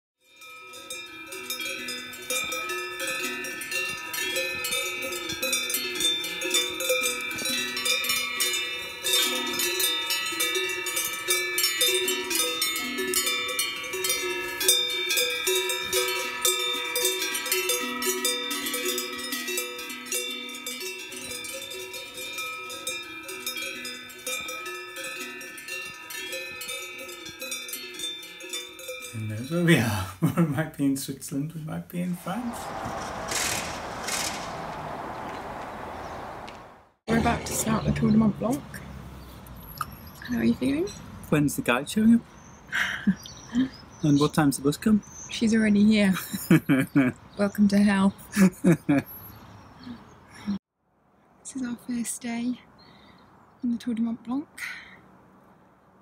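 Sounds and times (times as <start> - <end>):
cowbells jangling: 0.3 - 29.8.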